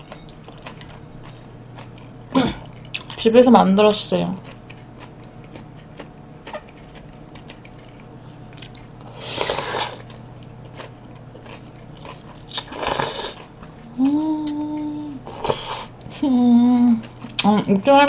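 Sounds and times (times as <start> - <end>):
soft chewing and mouth clicks: 0.0 - 3.2, 4.4 - 9.2, 9.9 - 17.5
person humming mmm: 12.5 - 17.2.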